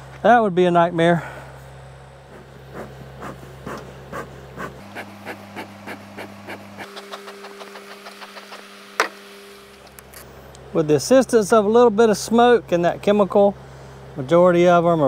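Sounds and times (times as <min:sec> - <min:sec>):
person panting: 0:02.3 - 0:06.8.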